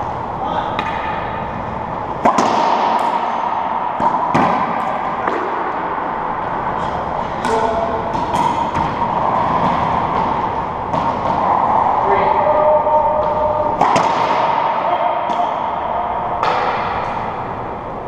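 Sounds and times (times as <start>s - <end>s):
steady background hum: 0.0s - 18.0s
racquetball cracking off walls: 2.2s - 5.8s, 7.4s - 11.8s, 13.2s - 15.8s.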